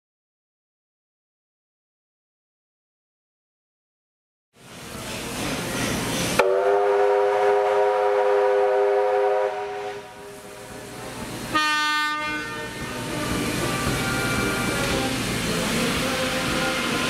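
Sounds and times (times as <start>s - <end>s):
steam locomotive whistle blasts: 6.4s - 10.7s, 11.5s - 14.8s.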